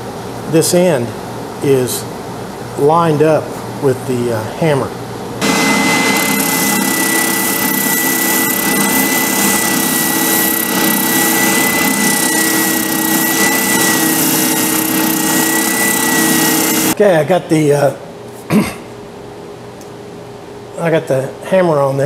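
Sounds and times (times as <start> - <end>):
spindle sander whining: 5.4 - 17.0.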